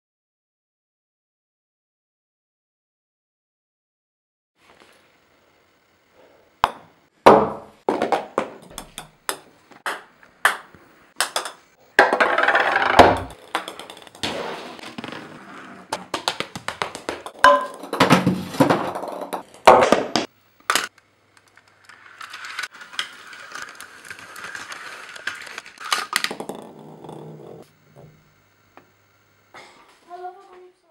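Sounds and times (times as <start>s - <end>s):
golf ball rolling and knocking: 6.6s - 20.3s, 26.2s - 28.2s.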